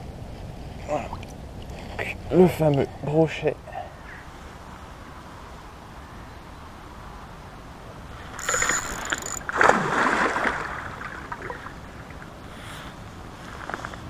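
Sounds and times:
high-pitched buzz: 8.4 - 9.4.

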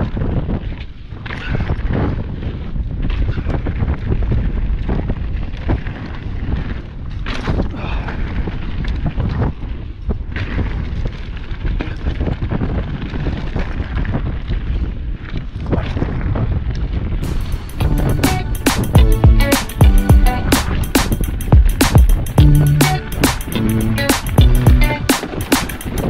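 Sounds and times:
wind rumble on microphone: 0.0 - 26.0
bike tyres rolling over stones: 1.9 - 16.1.

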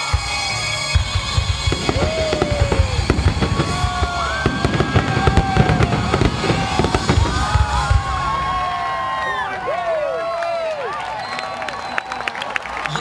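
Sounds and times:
music playing: 0.0 - 7.9
fireworks bangs and crackles: 0.0 - 9.7.

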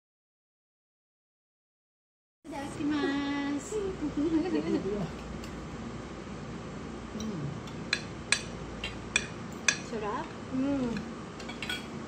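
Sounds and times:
person humming quietly: 7.1 - 7.7
cutlery clinking on plates: 11.0 - 12.0.

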